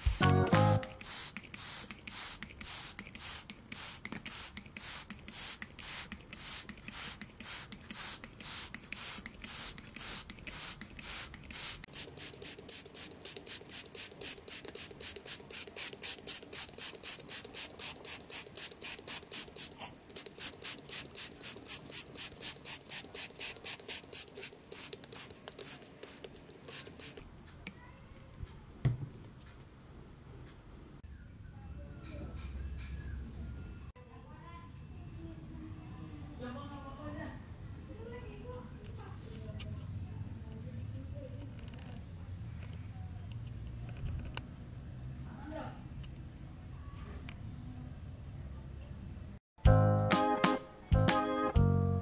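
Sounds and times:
spray bottle hissing: 0.0s - 31.0s.

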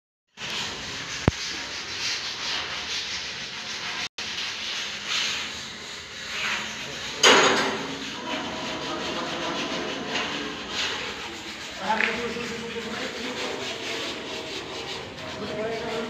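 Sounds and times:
scraping on steel grilles: 6.0s - 16.0s.

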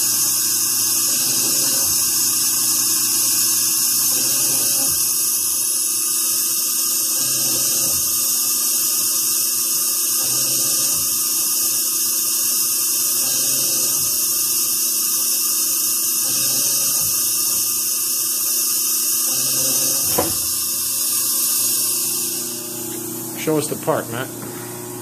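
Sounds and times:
coolant flowing: 0.0s - 24.0s
lathe cutter high-pitched whine: 0.0s - 24.2s.

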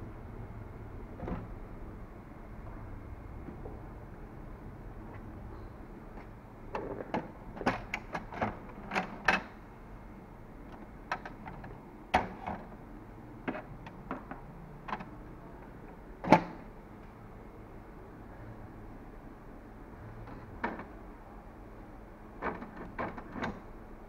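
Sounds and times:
plastic clicks and knocks of printer: 6.2s - 9.6s, 10.7s - 12.7s, 13.4s - 15.2s, 16.2s - 16.6s, 20.2s - 21.0s, 22.4s - 23.7s.

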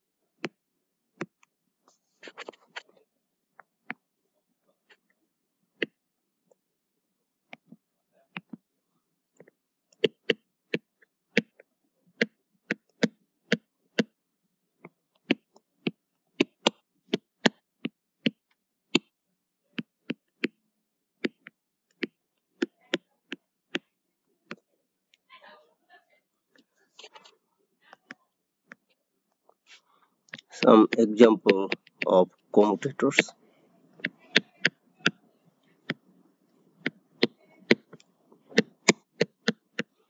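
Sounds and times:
stylus tapping on tablet screen: 7.5s - 8.6s, 9.4s - 14.2s, 14.8s - 19.2s, 19.8s - 20.6s, 21.2s - 23.9s, 30.3s - 33.2s, 34.0s - 35.2s, 36.8s - 40.0s.

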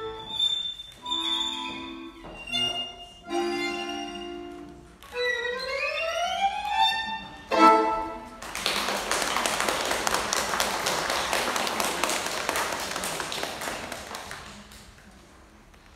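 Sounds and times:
violin: 0.0s - 8.3s
accordion: 0.0s - 8.4s
audience applause: 8.4s - 14.8s.

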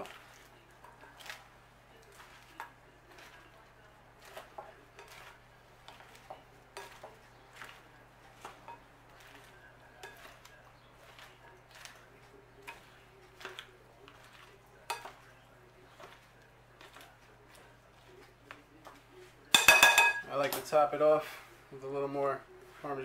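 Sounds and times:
salad leaves rustling: 0.0s - 19.6s
tongs clinking on glass bowl: 19.5s - 20.3s.

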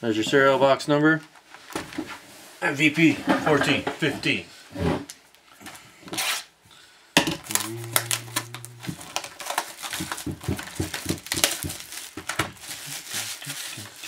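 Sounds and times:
cardboard rustling and clicking: 7.4s - 14.0s
plastic wrapper crinkling: 7.4s - 14.0s
steady low hum: 7.5s - 9.1s
small crackles: 7.6s - 14.0s.

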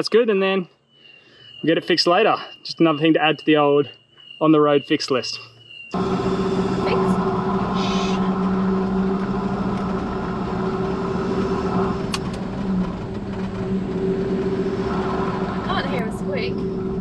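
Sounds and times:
engine and road drone in cab: 5.9s - 17.0s.

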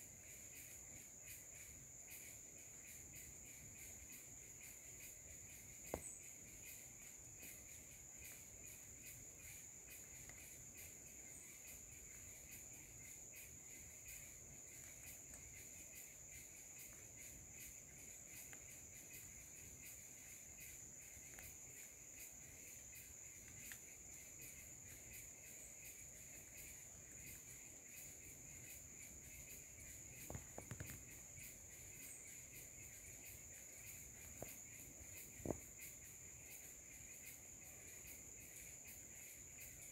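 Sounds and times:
insects trilling: 0.0s - 39.9s
low insect trill: 0.0s - 39.9s.

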